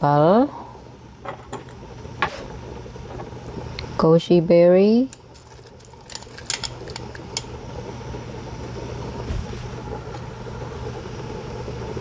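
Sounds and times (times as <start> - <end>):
low hum: 5.1 - 12.0
soup boiling: 5.1 - 12.0.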